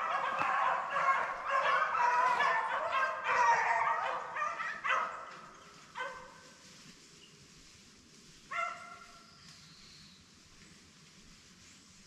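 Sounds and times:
dogs baying: 0.0s - 6.4s.

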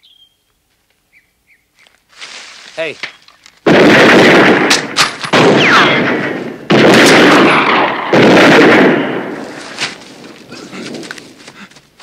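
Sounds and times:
rifle shots echoing: 3.6s - 9.8s.

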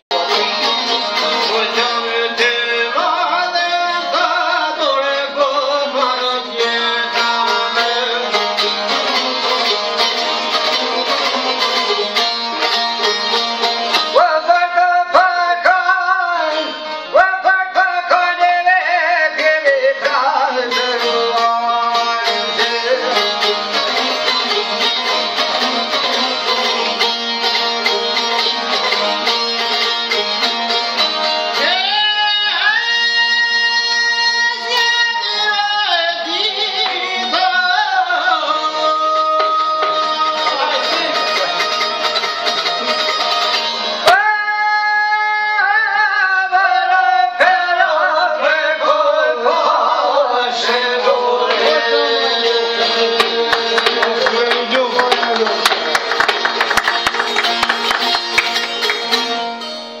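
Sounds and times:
man singing folk song: 0.1s - 12.0s, 14.0s - 24.6s, 31.5s - 41.6s, 44.0s - 55.9s
plucked lutes: 0.1s - 44.4s, 50.3s - 60.0s.

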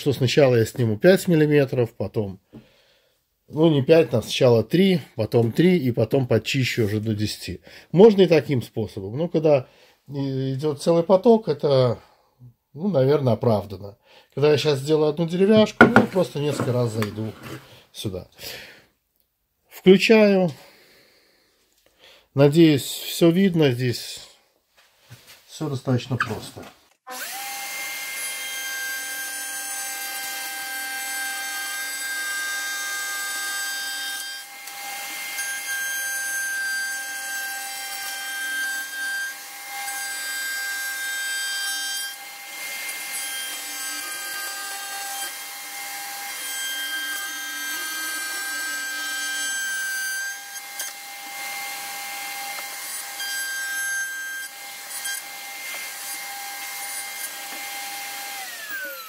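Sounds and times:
router bit cutting wood: 15.4s - 17.8s, 27.1s - 59.0s
router whining: 15.5s - 17.8s, 27.1s - 33.1s, 33.8s - 35.7s, 42.1s - 59.0s.

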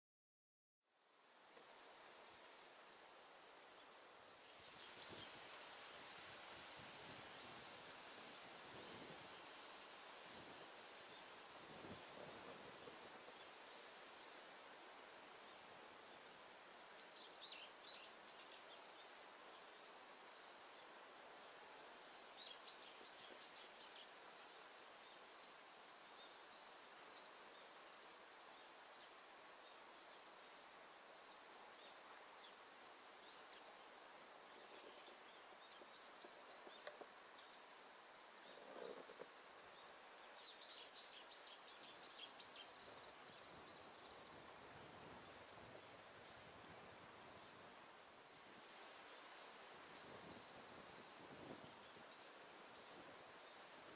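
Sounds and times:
soft steady hiss: 0.8s - 53.9s.

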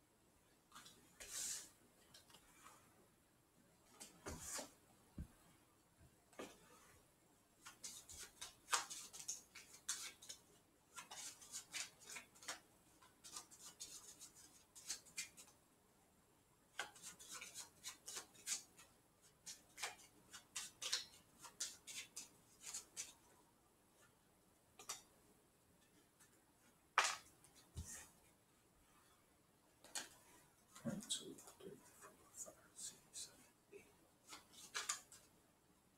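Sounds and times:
playing cards clicking and snapping: 7.6s - 10.4s, 11.0s - 12.6s, 19.5s - 23.1s, 27.0s - 27.3s, 34.3s - 35.2s.

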